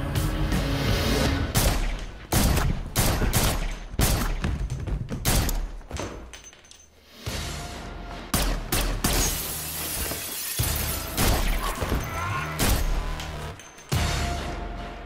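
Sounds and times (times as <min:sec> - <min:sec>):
music: 0:00.0 - 0:02.0, 0:07.0 - 0:15.0
rapid pistol shots: 0:01.6 - 0:04.5.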